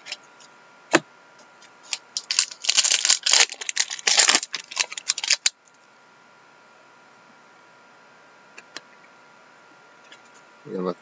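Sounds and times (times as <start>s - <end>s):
wrapper crinkling: 1.8s - 5.8s.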